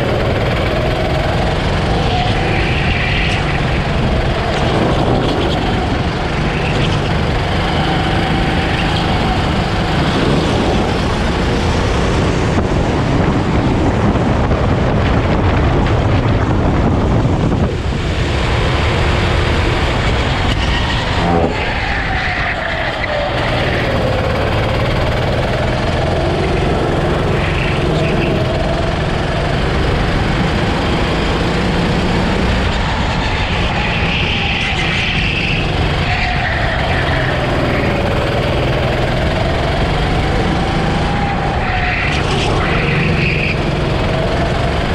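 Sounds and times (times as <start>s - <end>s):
go-kart engine running: 0.0s - 44.9s
wind and road noise: 0.0s - 44.9s.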